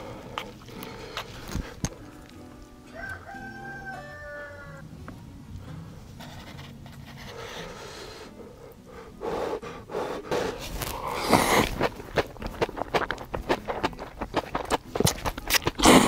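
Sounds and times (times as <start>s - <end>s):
breathy noodle slurps: 10.1s - 16.0s.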